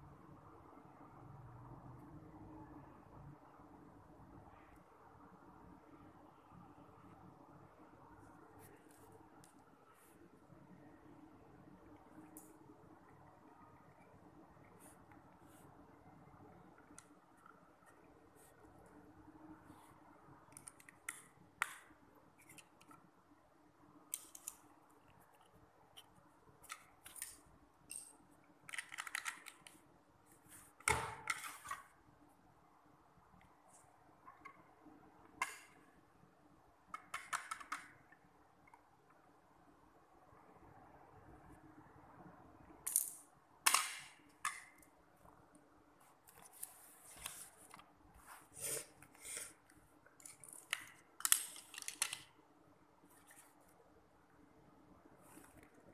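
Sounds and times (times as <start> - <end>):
plastic bricks clicking and tapping: 37.0 - 38.0.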